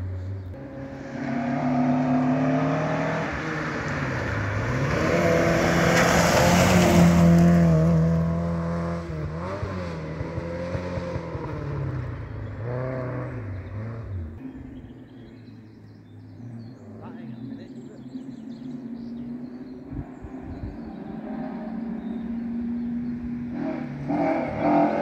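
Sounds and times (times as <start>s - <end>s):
rally car engine revving past: 0.6s - 14.4s, 18.5s - 25.0s.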